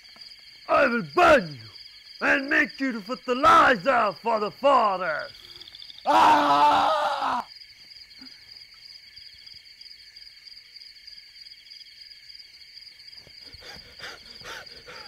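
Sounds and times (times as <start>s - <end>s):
night insects trilling: 0.0s - 15.0s
person yelling: 0.7s - 5.3s, 6.1s - 7.4s.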